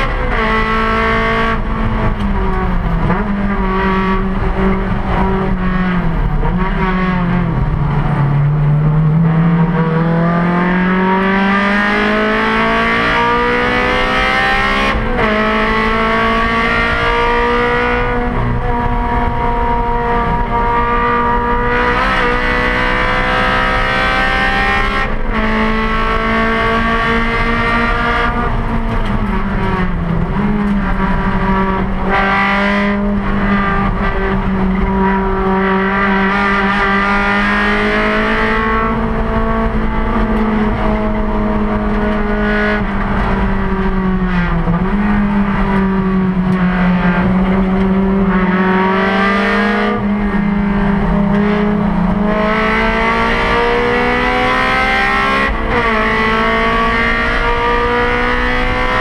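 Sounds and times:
race car engine at high revs: 0.0s - 59.0s
road and wind noise: 0.0s - 59.0s.

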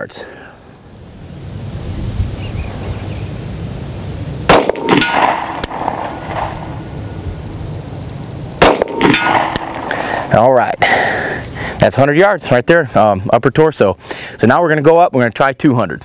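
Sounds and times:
pistol shots: 4.5s - 6.8s, 8.6s - 10.0s
steel target clanging: 4.5s - 6.8s, 8.6s - 10.2s.

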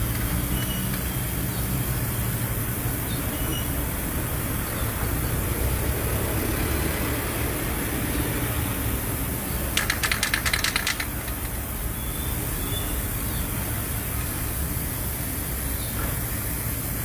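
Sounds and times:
road traffic rumble: 0.0s - 17.0s
aerosol can being shaken: 9.7s - 11.7s.

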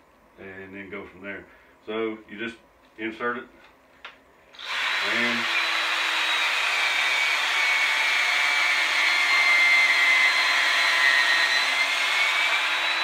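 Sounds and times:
cordless drill whining: 4.6s - 13.0s.

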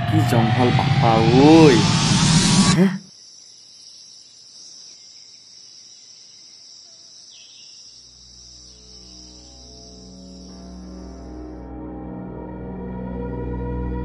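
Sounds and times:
insect chorus buzzing: 0.0s - 14.0s
low sustained music tones: 8.1s - 14.0s.

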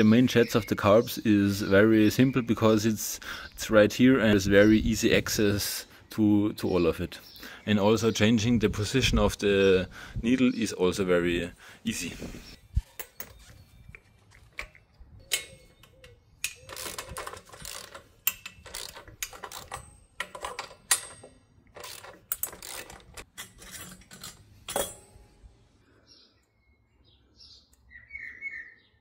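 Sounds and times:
metal tools clinking and scraping: 12.0s - 25.5s.

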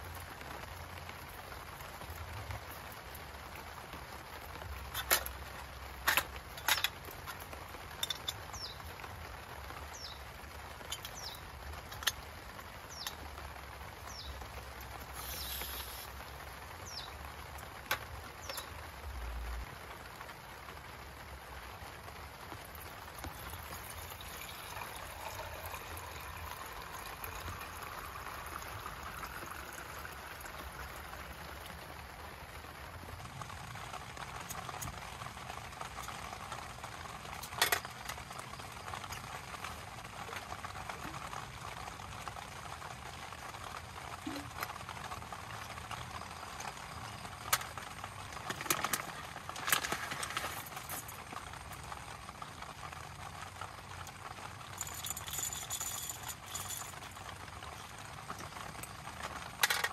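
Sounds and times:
sharp drips and taps: 0.0s - 9.0s, 9.9s - 16.2s, 16.8s - 18.8s, 22.5s - 32.0s
steady rain falling: 0.0s - 59.9s.

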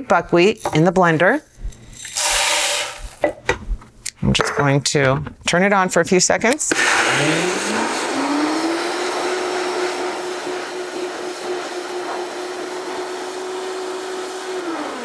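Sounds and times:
grain rushing in blender jar: 2.0s - 3.2s
blender motor whine: 6.7s - 15.0s.

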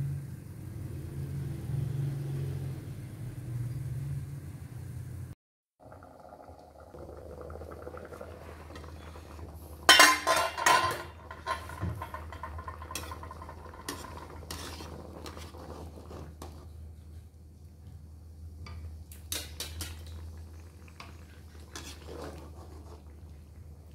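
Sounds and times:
dishes and utensils clattering: 9.8s - 14.6s.

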